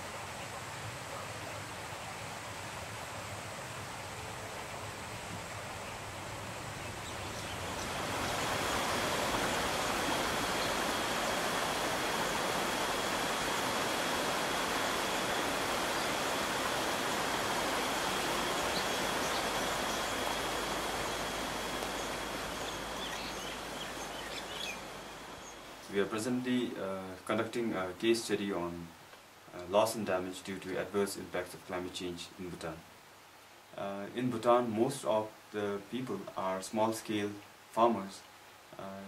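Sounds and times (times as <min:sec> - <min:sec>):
wide river rushing: 0:00.0 - 0:26.2.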